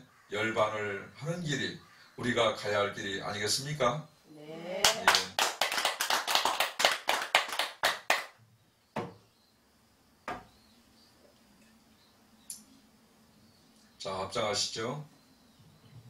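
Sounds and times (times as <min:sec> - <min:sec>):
hands clapping: 0:04.8 - 0:08.4
single knocks: 0:10.3 - 0:10.5.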